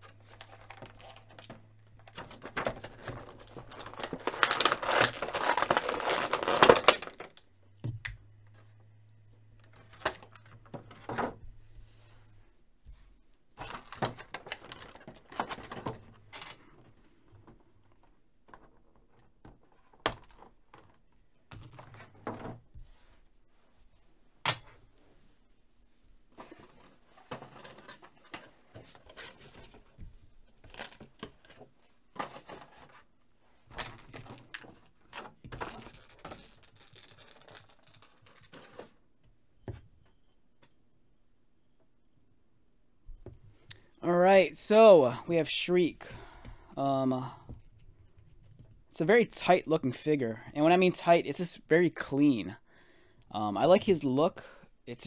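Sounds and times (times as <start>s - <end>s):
plastic blister tray crinkling: 0.0s - 7.5s, 13.6s - 16.6s, 33.7s - 39.0s.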